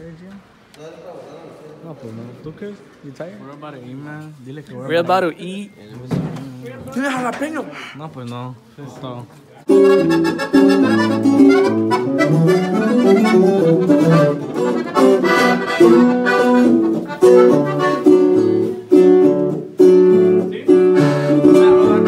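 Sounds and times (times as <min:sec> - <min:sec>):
button accordion: 0:09.7 - 0:22.0
strummed twelve-string guitar: 0:09.7 - 0:22.0.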